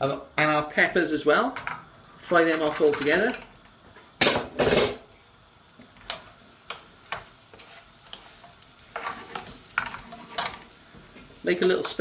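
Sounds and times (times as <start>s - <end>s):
faint sizzle of frying: 0.0s - 12.0s
wooden spoon stirring vegetables: 5.7s - 12.0s.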